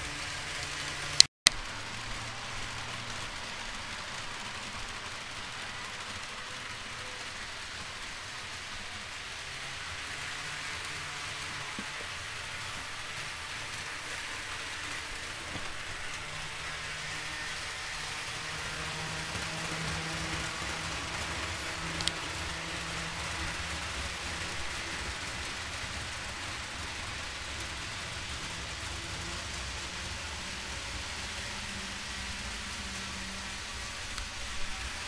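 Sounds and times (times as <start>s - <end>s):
model trains rolling hiss: 0.0s - 35.0s.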